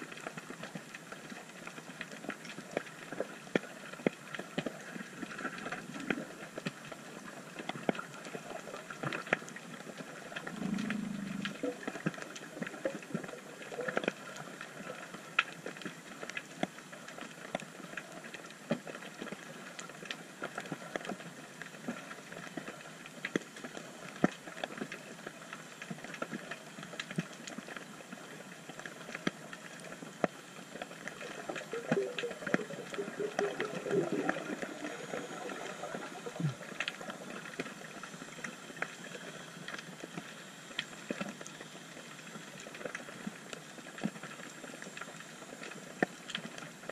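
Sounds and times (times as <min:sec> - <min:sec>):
low underwater burbling: 0:10.4 - 0:13.2, 0:31.0 - 0:37.4
underwater clicks and pops: 0:31.4 - 0:37.0.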